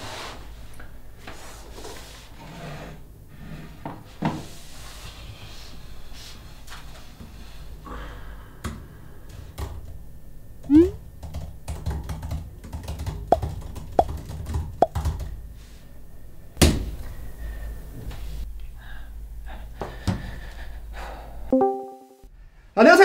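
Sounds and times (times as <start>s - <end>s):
brief tone: 10.7s - 11.0s, 21.5s - 22.3s.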